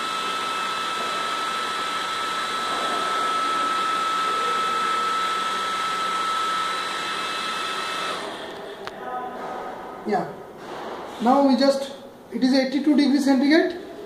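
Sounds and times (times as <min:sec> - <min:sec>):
electric blower motor whining: 0:00.0 - 0:08.8.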